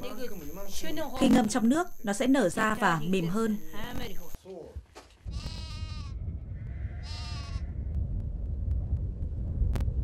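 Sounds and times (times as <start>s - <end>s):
sheep or goat bleating: 5.3s - 7.8s
steady low rumble: 5.3s - 10.0s.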